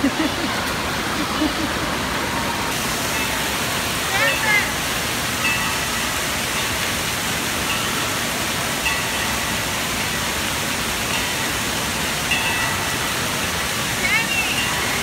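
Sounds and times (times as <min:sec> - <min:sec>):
water spraying and falling: 0:00.0 - 0:15.0.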